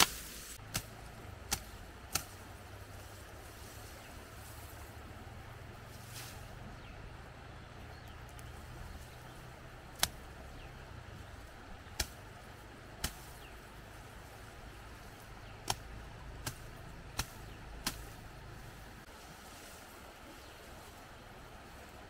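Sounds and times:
blade cutting tall grass: 0.0 - 5.0, 11.8 - 13.6, 15.5 - 20.5
steady low rumble: 0.0 - 22.0.

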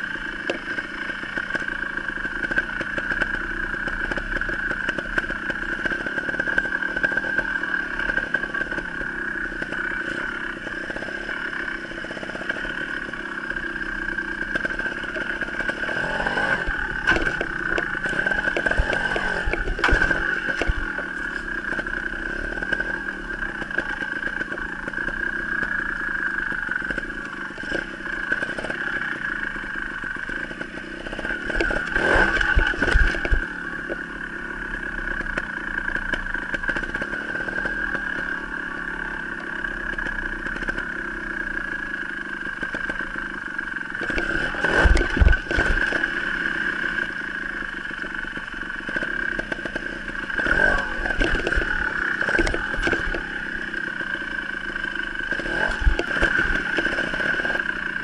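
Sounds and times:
motorcycle engine running: 0.0 - 58.0
engine throttle bursts: 13.5 - 41.7, 42.6 - 58.0.

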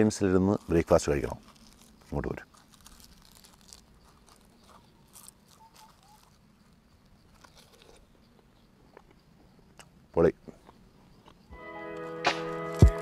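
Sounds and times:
bread torn and chewed: 0.5 - 8.5.

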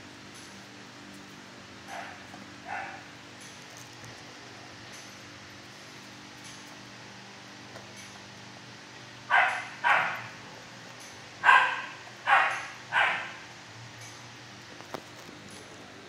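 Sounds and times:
dog barking with echo: 1.9 - 3.1, 9.3 - 10.4, 11.4 - 13.4.

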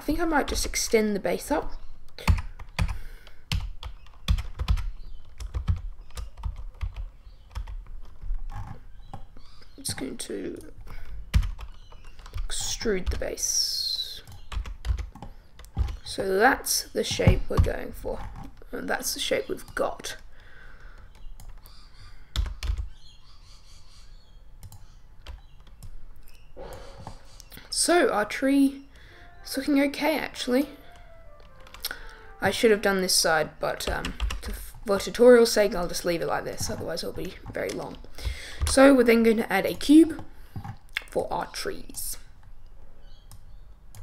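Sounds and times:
keyboard keys clicking: 2.2 - 13.3, 14.2 - 16.1, 20.8 - 21.7, 22.3 - 22.9, 30.9 - 32.6.

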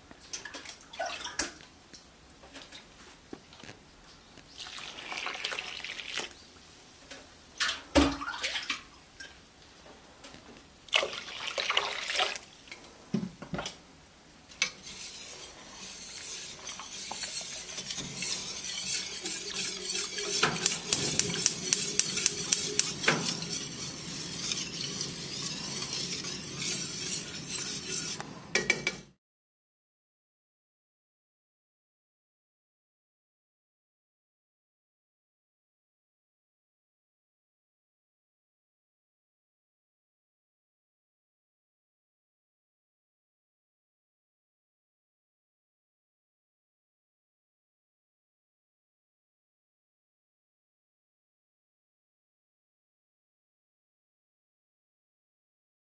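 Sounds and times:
water pouring into metal pot: 4.6 - 6.3, 10.9 - 12.4, 15.8 - 23.9
wire whisk ticking against pot: 14.6 - 28.2.

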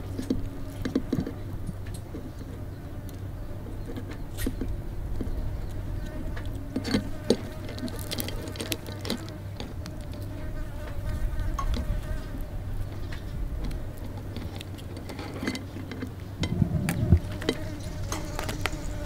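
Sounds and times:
steady low hum: 0.0 - 19.0
thin insect-like buzz: 5.2 - 14.3, 16.4 - 19.0
clicks and crackles of shell: 6.4 - 10.3, 12.9 - 18.9.

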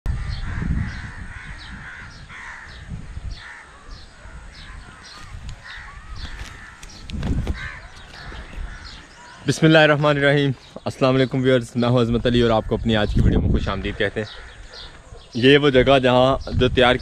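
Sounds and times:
crows cawing: 0.1 - 10.3, 13.8 - 15.3.

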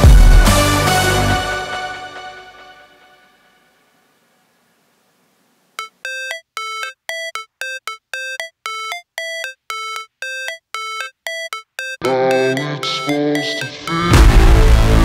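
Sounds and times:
bell-like synth stabs: 5.8 - 15.0.

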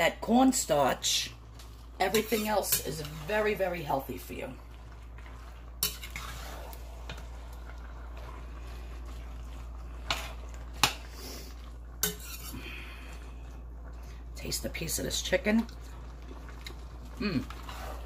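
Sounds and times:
spoon scraping in a pot: 1.6 - 3.7, 4.7 - 12.7.

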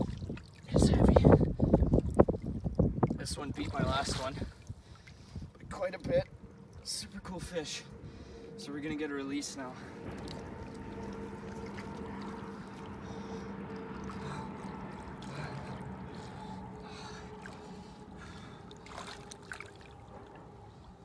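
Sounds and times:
small water splashes: 0.0 - 7.1, 10.0 - 20.4
river water sloshing and trickling: 0.0 - 21.0
steady low hum: 0.0 - 21.0.

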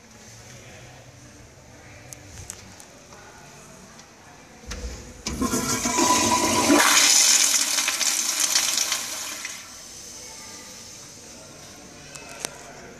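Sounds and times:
toilet flushing water rush: 5.3 - 9.7.

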